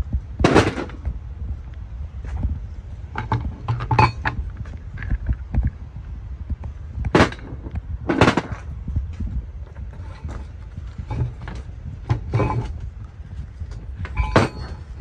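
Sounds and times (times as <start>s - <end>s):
metal parts clanking on workbench: 3.2s - 4.4s, 11.1s - 12.8s, 14.0s - 14.9s.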